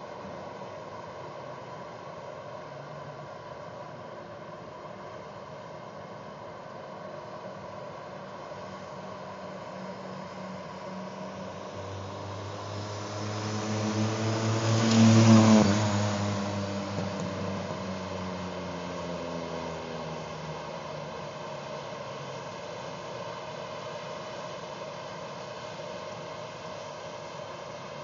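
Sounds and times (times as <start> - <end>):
car driving past: 11.7 - 21.0.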